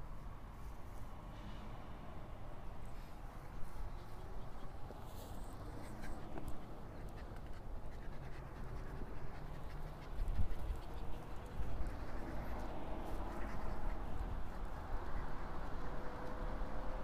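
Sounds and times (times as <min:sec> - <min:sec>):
dog panting: 0:05.7 - 0:16.2.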